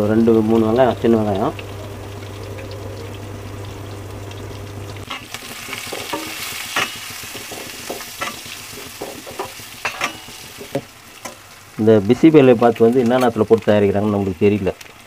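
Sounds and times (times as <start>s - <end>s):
low steady hum: 0.0s - 7.3s
shallots sizzling in hot fat: 0.0s - 15.0s.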